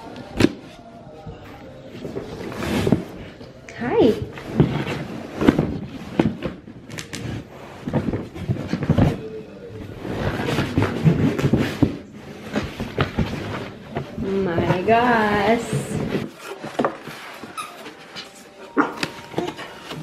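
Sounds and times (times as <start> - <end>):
paper and cardboard rustling: 0.0 - 20.0.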